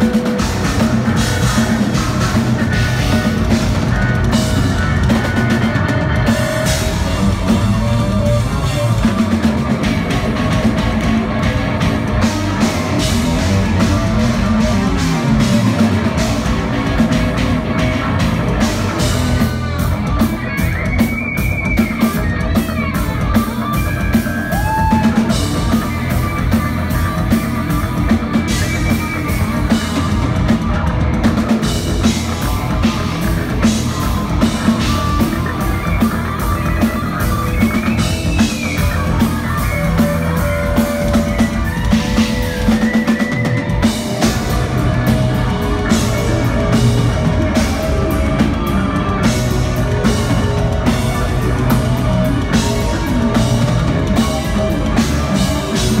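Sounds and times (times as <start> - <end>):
lead electric guitar runs: 0.0 - 56.0
metal band playing live: 0.0 - 56.0.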